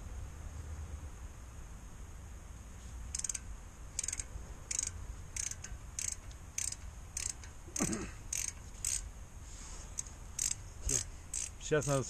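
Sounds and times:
hand ratchet clicking: 0:03.1 - 0:09.1, 0:10.0 - 0:12.0.

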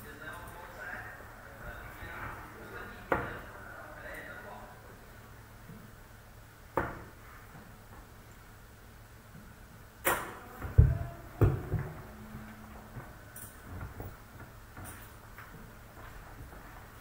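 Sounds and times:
darts thudding into dartboard: 0:06.7 - 0:07.2.

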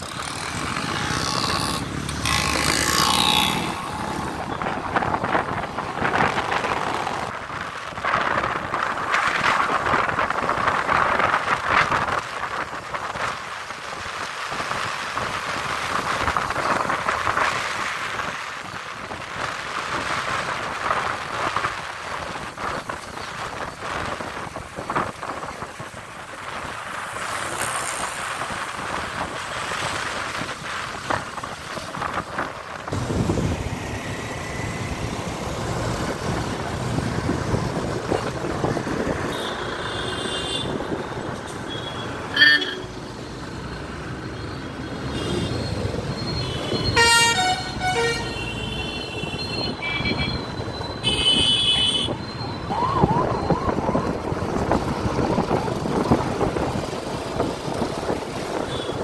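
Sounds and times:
road traffic rumble: 0:00.0 - 0:59.0
vehicle horns honking: 0:41.7 - 0:43.0, 0:46.4 - 0:50.4, 0:51.0 - 0:52.2.

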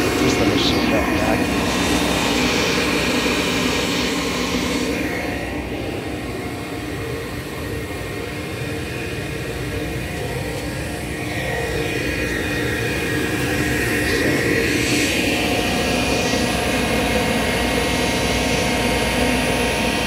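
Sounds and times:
vacuum blower drone with whine: 0:00.0 - 0:20.0.

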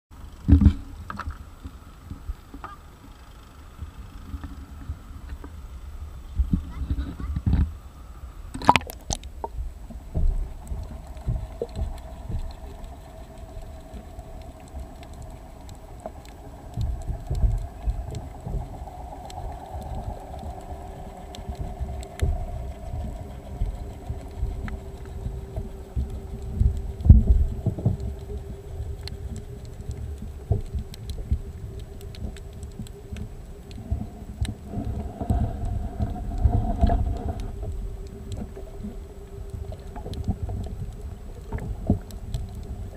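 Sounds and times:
motor hum through water: 0:00.1 - 0:42.9
underwater thumps and rumble: 0:00.4 - 0:02.8, 0:06.3 - 0:07.7, 0:08.5 - 0:42.9.

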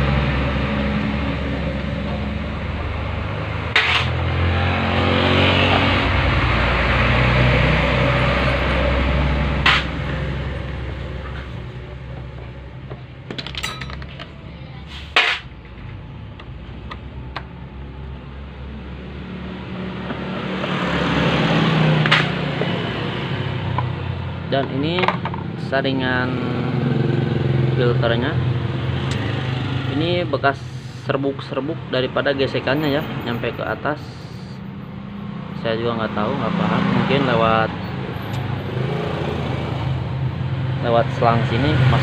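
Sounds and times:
vehicle engine running: 0:00.0 - 0:13.4.

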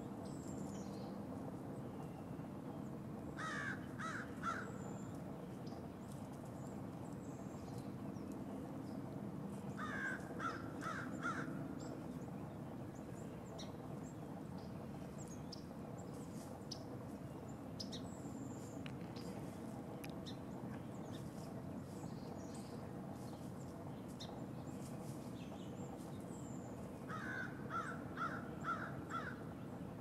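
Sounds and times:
low background rumble: 0:00.0 - 0:30.0
crow cawing: 0:03.4 - 0:04.8, 0:09.8 - 0:11.6, 0:27.1 - 0:29.4.

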